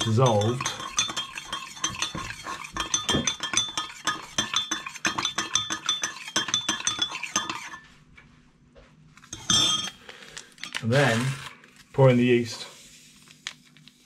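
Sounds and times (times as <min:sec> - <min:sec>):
metal spoon clinking against glass: 0:00.0 - 0:07.8, 0:09.3 - 0:10.0.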